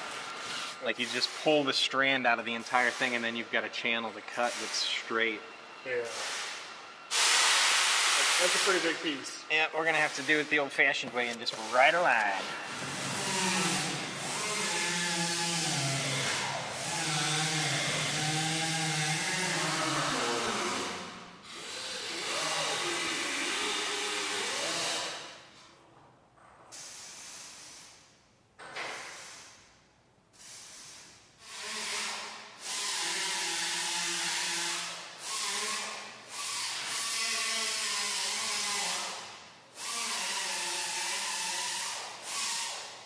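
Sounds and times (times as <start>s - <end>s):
electric cutter whirring: 12.4s - 25.3s.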